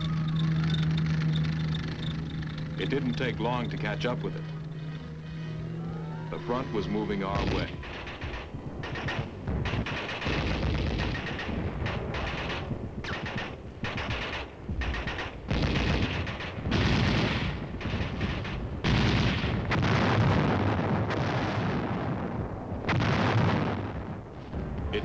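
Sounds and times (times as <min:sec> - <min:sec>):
machine-gun fire: 0:06.8 - 0:22.1.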